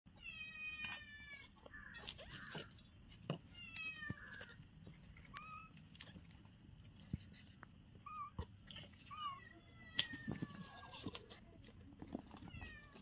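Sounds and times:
kittens mewing: 0:07.2 - 0:13.0.

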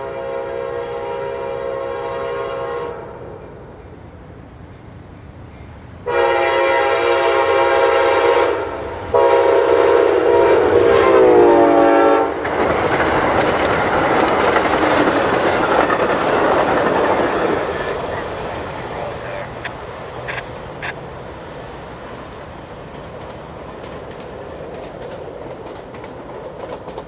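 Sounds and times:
locomotive air horn blasts: 0:00.0 - 0:03.2, 0:06.0 - 0:12.3
train wheels on rails: 0:03.2 - 0:27.0.

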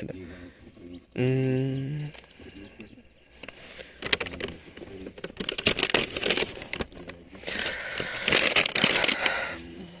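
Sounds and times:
paper bag crinkling: 0:03.4 - 0:09.6.

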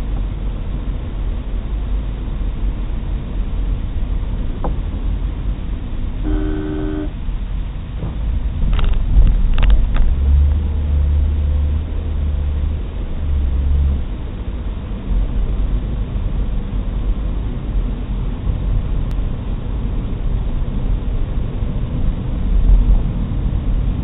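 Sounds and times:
car engine and road rumble: 0:00.0 - 0:24.0.

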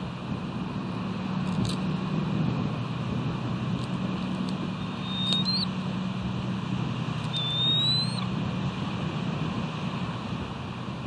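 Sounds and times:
low hum: 0:00.0 - 0:11.0
high whistled notes: 0:05.0 - 0:05.7, 0:07.4 - 0:08.2.

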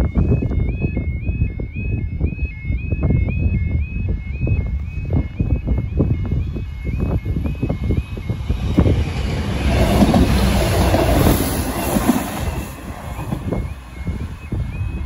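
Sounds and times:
two-tone crossing alarm: 0:00.0 - 0:15.0
train rumbling past: 0:07.6 - 0:15.0
train wheel knocks: 0:08.8 - 0:13.7.

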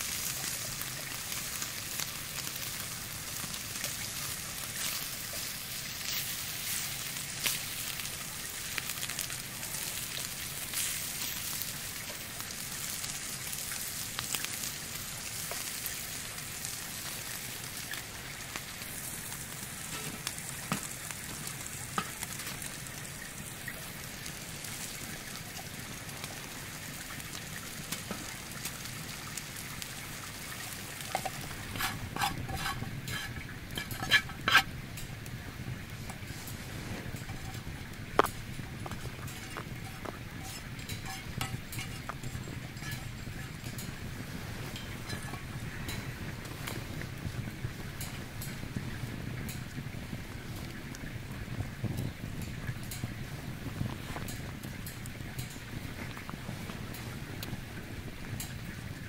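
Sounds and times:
bacon sizzling in a frying pan: 0:00.0 - 0:59.0
utensil clicking against pan: 0:31.1 - 0:35.1, 0:37.2 - 0:44.0.

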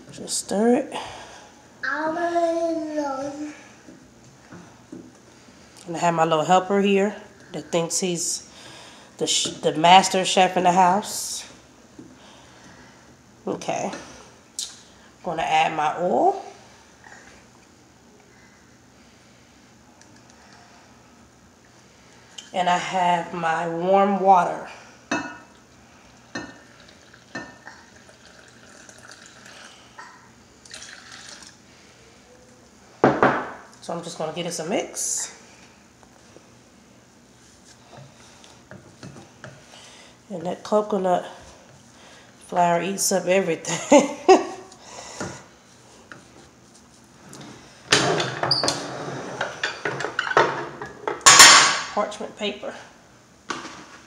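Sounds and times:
water pouring into a glass bowl: 0:26.7 - 0:29.7, 0:30.6 - 0:31.6.

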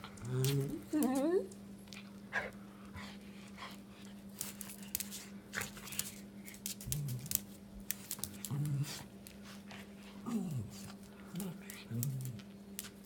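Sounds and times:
dog claws clicking on concrete: 0:04.4 - 0:09.4.

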